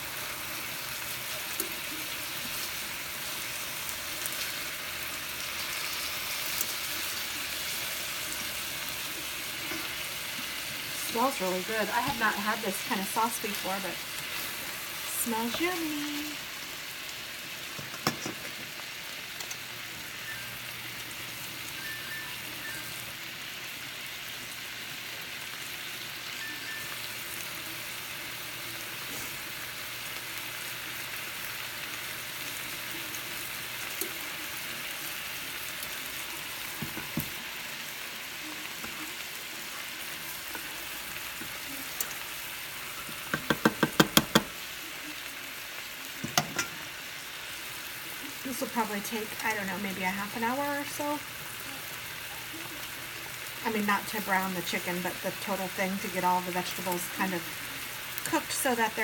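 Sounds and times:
chicken sizzling in a skillet: 0:00.0 - 0:59.0
tongs clacking against a pan: 0:46.3 - 0:46.8.

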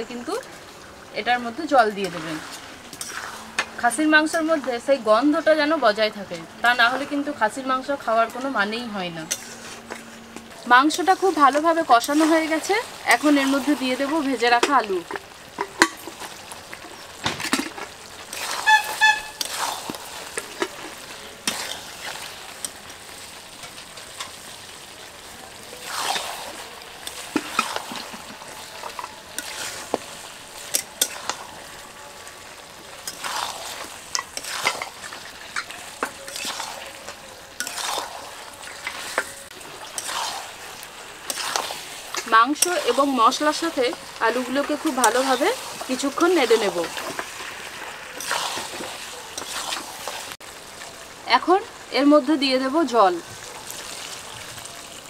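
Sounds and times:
food sizzling in a pan: 0:00.0 - 0:55.0
spatula scraping a pan: 0:02.0 - 0:04.5, 0:09.3 - 0:17.0, 0:17.6 - 0:24.9, 0:25.5 - 0:50.4.

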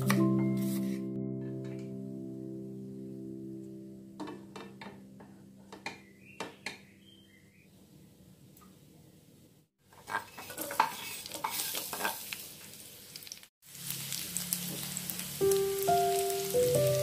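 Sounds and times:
background music: 0:00.0 - 0:05.9, 0:15.4 - 0:17.0
spatula stirring in pan: 0:09.8 - 0:12.5
food sizzling in hot oil: 0:10.0 - 0:17.0.

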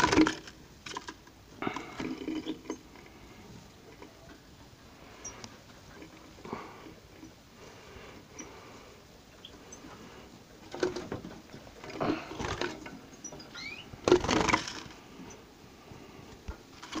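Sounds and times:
bird rustling and fluttering: 0:09.3 - 0:17.0
bird chirping: 0:13.1 - 0:14.0.

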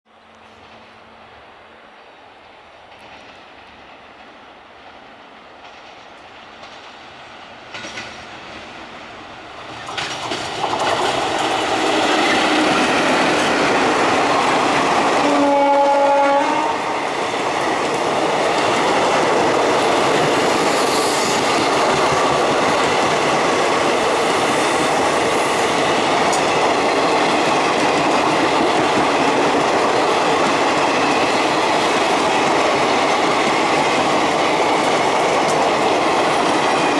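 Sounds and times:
train approaching: 0:00.1 - 0:36.9
train wheels clattering on rails: 0:02.8 - 0:36.9
train horn blast: 0:15.2 - 0:17.0.

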